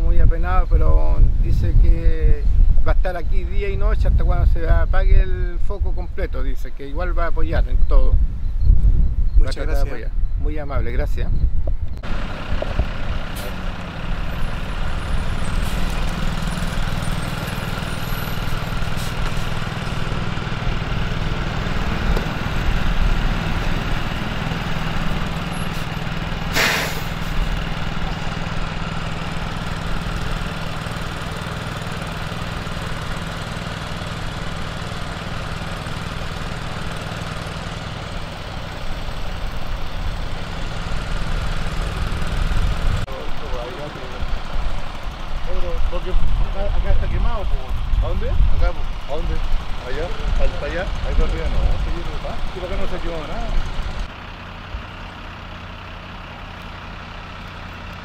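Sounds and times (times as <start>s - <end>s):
fire engines idling: 12.0s - 58.0s
short hiss: 26.5s - 27.4s.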